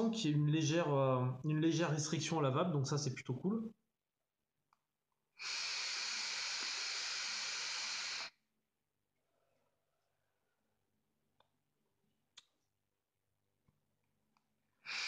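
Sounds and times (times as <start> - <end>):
airy hiss of vape draw: 5.4 - 8.4.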